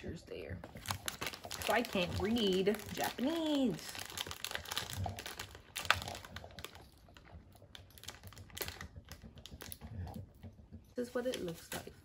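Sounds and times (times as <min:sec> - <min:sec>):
plastic package clicks and rustles: 0:00.7 - 0:10.2.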